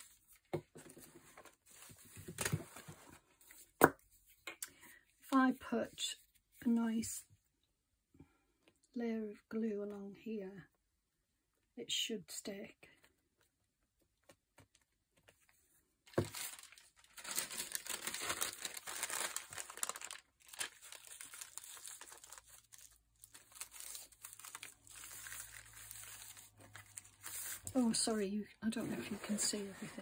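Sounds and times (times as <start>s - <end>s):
tissue paper crinkling: 16.1s - 28.2s.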